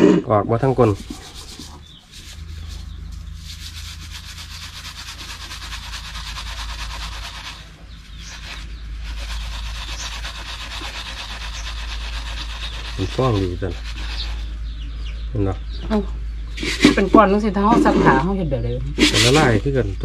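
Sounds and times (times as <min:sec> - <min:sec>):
steady low hum: 0:00.0 - 0:20.0
scouring pad scrubbing soap: 0:00.6 - 0:07.7, 0:08.3 - 0:14.5, 0:19.0 - 0:19.5.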